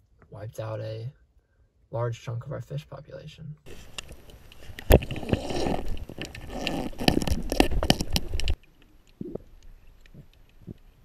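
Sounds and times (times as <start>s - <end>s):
underwater rushing water: 3.7s - 11.0s
underwater clicks and knocks: 3.8s - 10.9s.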